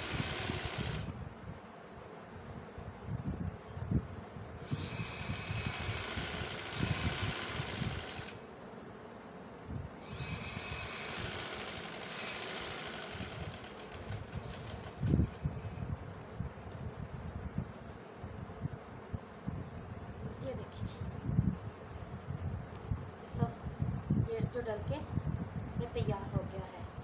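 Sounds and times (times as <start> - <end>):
sewing machine stitching: 0.0 - 1.1, 4.7 - 8.4, 10.0 - 15.3.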